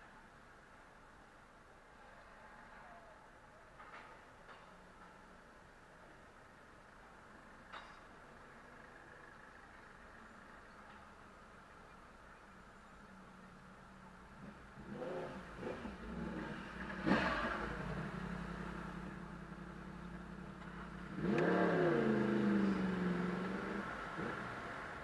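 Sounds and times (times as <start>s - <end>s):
city traffic: 0.0s - 25.0s
motorcycle engine revving: 14.4s - 25.0s.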